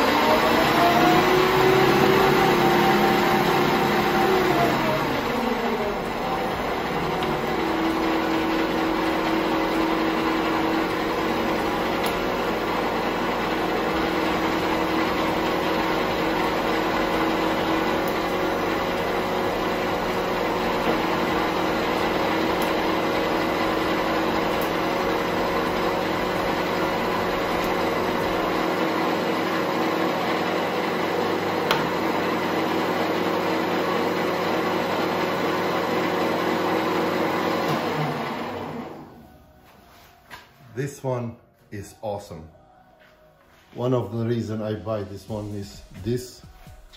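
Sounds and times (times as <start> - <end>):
metal lathe humming: 0.0 - 39.2.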